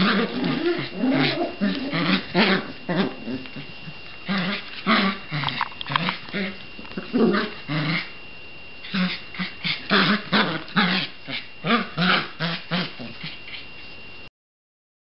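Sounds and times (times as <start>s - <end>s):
puppy growling in play: 0.0s - 8.2s, 8.8s - 14.0s.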